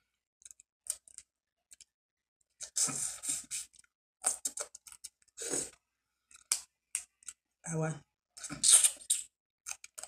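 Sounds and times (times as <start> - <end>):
eating sound: 2.6 - 5.8
crab shells cracking: 6.3 - 7.4, 9.7 - 10.0.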